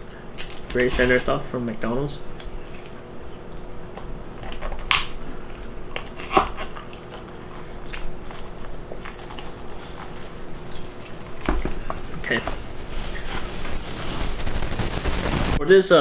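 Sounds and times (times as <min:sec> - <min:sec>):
person chewing food: 0:02.4 - 0:13.6.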